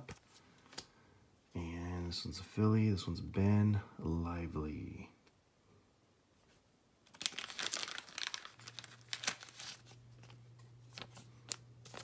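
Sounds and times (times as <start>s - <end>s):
plastic crinkling: 7.0s - 12.0s.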